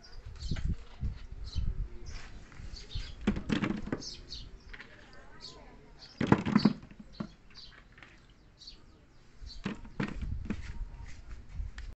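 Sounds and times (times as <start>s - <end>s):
small birds chirping: 0.0s - 11.3s
plastic toy balls knocking: 3.2s - 4.0s, 6.2s - 7.4s, 9.6s - 10.6s.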